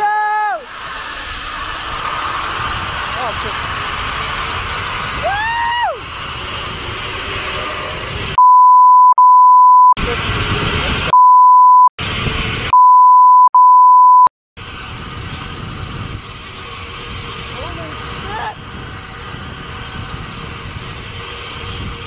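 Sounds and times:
censor bleep: 8.4s - 10.0s, 11.1s - 11.9s, 12.7s - 14.3s
wind noise on microphone: 10.0s - 11.2s, 12.0s - 12.7s, 14.6s - 22.0s.

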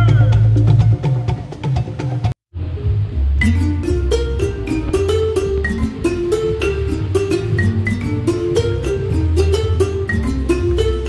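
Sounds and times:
music with percussive beat: 0.0s - 2.4s, 3.4s - 11.0s
held bass note: 2.6s - 11.0s.

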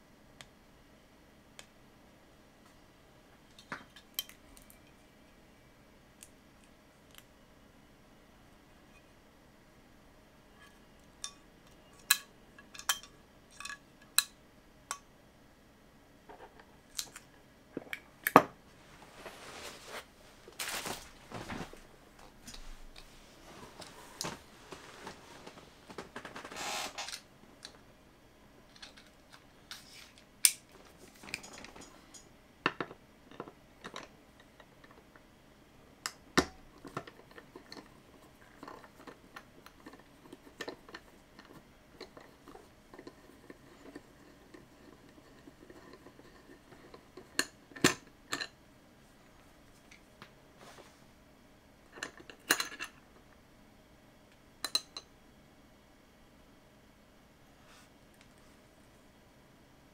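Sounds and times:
short scraping sounds: 26.5s - 27.1s.

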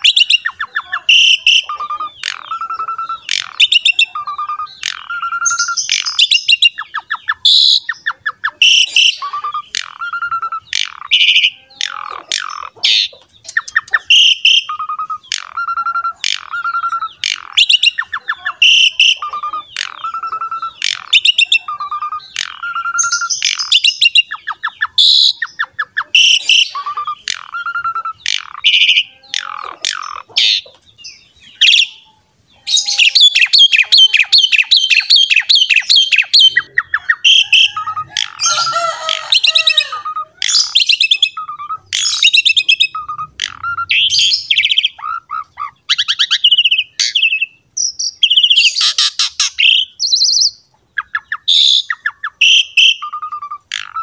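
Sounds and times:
starling singing: 0.0s - 54.0s
sharp bird clicking notes: 13.2s - 14.2s.

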